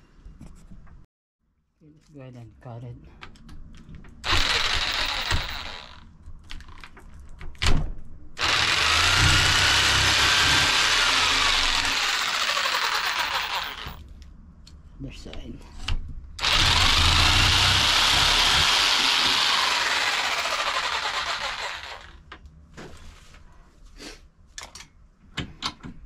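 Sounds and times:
power saw cutting pipe: 0:04.2 - 0:06.0, 0:08.4 - 0:14.0, 0:16.4 - 0:22.2.

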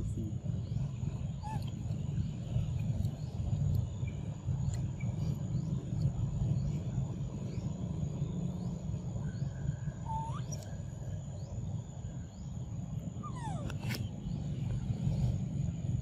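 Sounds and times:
steady low rumble: 0:00.0 - 0:16.0
high squeaky animal calls: 0:01.4 - 0:01.8, 0:10.0 - 0:10.8, 0:13.2 - 0:14.0.

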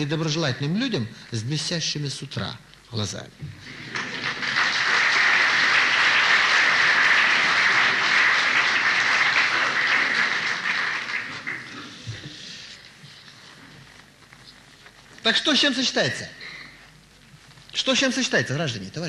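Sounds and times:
audience applauding: 0:03.6 - 0:12.5.

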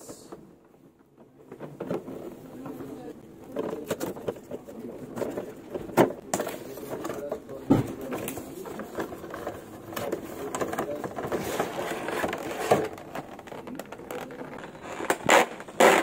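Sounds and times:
cardboard box rustling and scraping: 0:08.4 - 0:16.0.

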